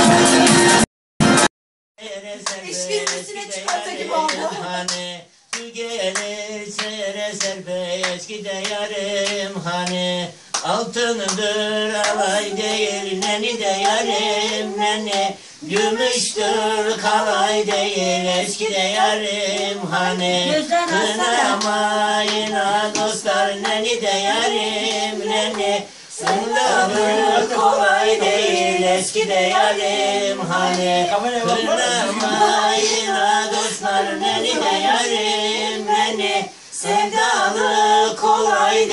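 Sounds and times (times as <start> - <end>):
woman singing unaccompanied: 2.1 - 5.0, 11.0 - 38.9.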